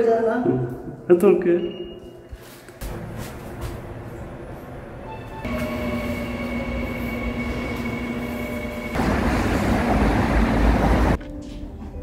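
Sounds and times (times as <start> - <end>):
vehicle whine: 2.8 - 11.2
vehicle rushing rumble: 2.9 - 11.2.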